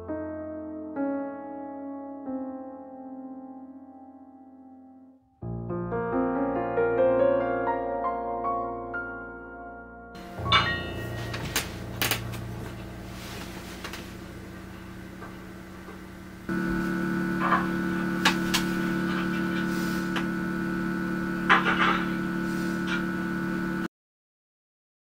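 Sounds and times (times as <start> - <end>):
electrical appliance hum: 10.2 - 23.9.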